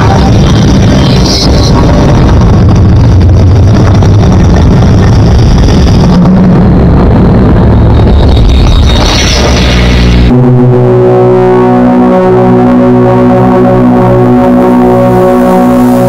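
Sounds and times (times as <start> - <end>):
deep rumbling roar of dust storm: 0.0 - 10.9.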